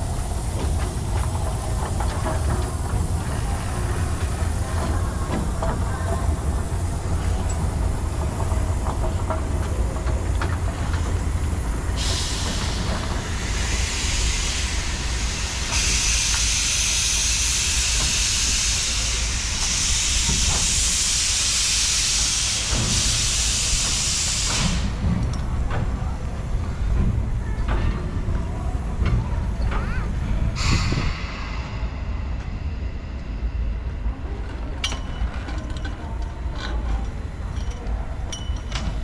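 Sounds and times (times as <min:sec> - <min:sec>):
loud steam hiss: 0:10.3 - 0:25.2, 0:30.1 - 0:34.4
steady low rumble: 0:30.1 - 0:35.9.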